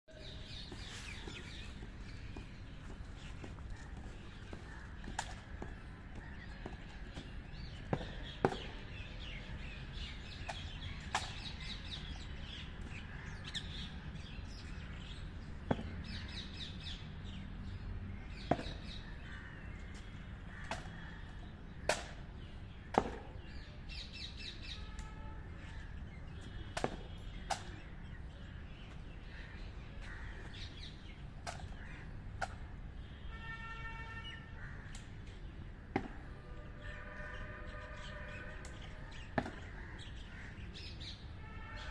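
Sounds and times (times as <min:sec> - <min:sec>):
birds chirping: 0:00.1 - 0:41.9
boots stamping on road: 0:00.3 - 0:09.3, 0:15.6 - 0:16.4.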